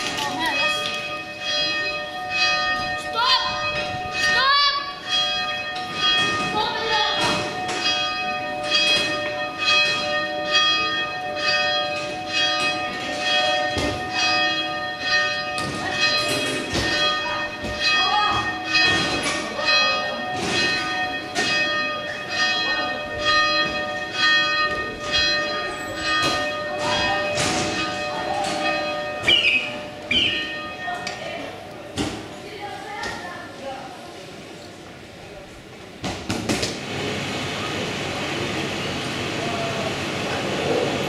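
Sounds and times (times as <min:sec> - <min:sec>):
church bells ringing: 0:00.0 - 0:32.0.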